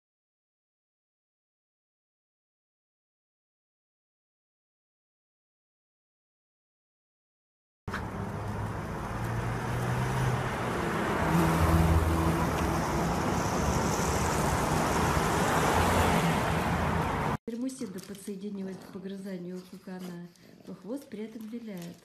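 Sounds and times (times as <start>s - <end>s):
road traffic with cars passing: 7.9s - 17.4s.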